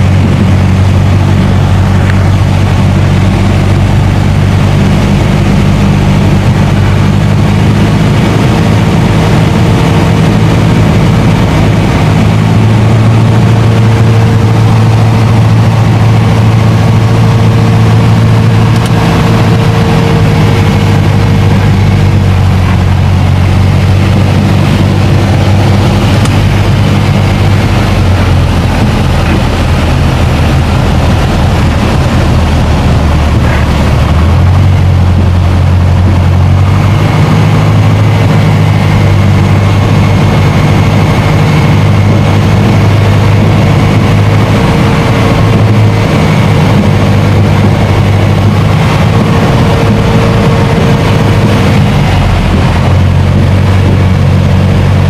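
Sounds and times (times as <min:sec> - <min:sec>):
aircraft engine and propeller droning: 0:00.0 - 0:55.0
airflow noise: 0:00.0 - 0:55.0.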